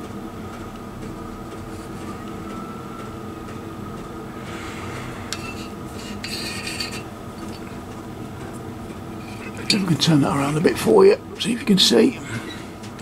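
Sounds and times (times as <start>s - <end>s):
low workshop hum: 0.0s - 13.0s
metallic scrape of gauge: 4.5s - 7.1s, 9.2s - 9.7s.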